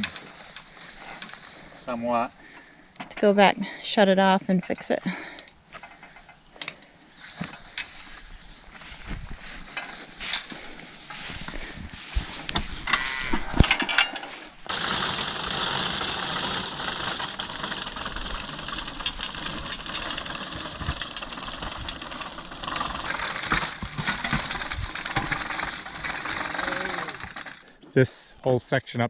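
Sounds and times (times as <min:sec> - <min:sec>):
mower cutter bar clattering: 0:12.3 - 0:27.6.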